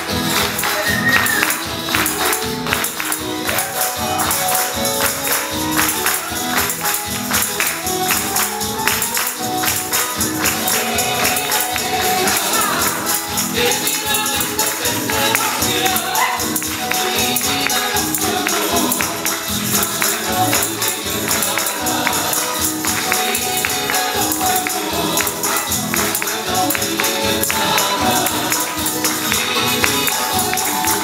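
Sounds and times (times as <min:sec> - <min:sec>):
tambourine beat: 0:00.0 - 0:31.0
person singing: 0:09.0 - 0:31.0.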